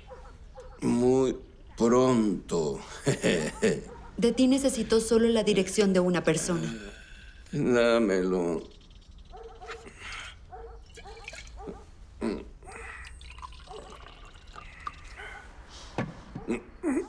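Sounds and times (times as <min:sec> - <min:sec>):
liquid dripping: 0:08.8 - 0:11.8, 0:12.7 - 0:15.5.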